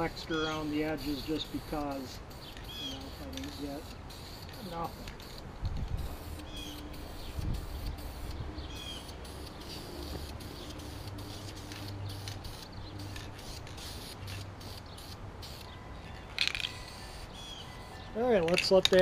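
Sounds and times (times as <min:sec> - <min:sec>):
bird chirping: 0:00.0 - 0:05.4, 0:06.2 - 0:18.3
aerosol spray can hissing: 0:01.0 - 0:15.8.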